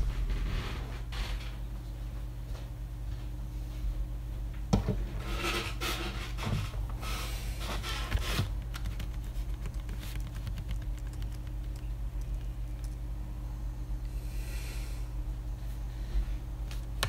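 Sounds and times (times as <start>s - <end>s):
steady low hum: 0.0s - 17.0s
computer keyboard clicks: 8.6s - 13.0s.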